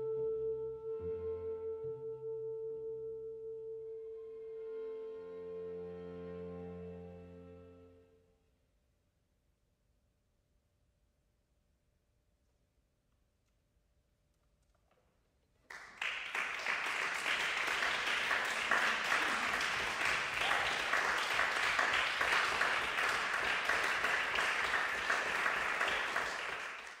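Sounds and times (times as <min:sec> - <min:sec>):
audience applauding: 0:15.7 - 0:27.0.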